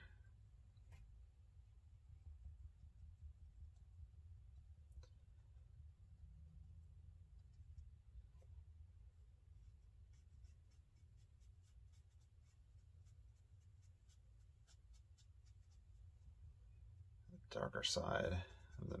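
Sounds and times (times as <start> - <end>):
steady low hum: 0.0 - 19.0
paintbrush scratching on paper: 9.6 - 16.4, 18.2 - 19.0.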